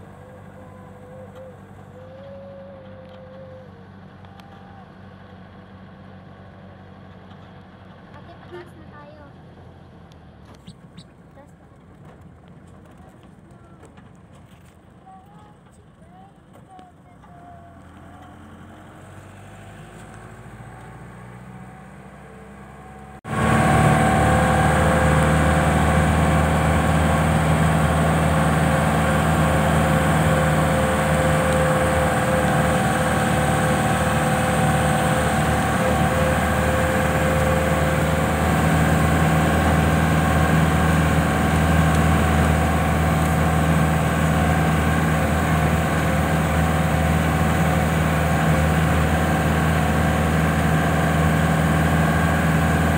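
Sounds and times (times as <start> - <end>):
vehicle engine droning: 0.0 - 52.9.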